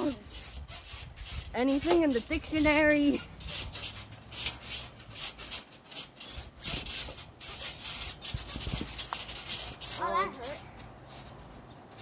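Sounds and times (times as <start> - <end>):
wind on microphone: 0.0 - 3.9, 7.9 - 9.2.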